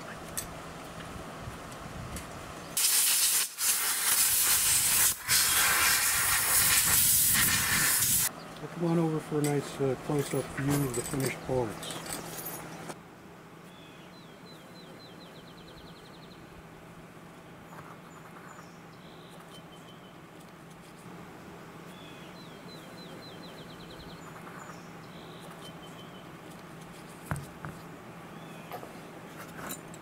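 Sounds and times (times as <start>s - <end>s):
songbird singing: 8.3s - 13.0s, 13.6s - 16.6s, 17.3s - 20.3s, 21.3s - 26.6s, 27.6s - 29.3s.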